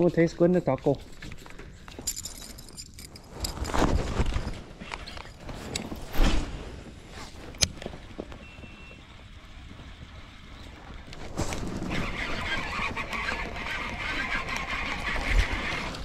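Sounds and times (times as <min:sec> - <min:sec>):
fishing rod handling rustling: 0:00.0 - 0:06.0.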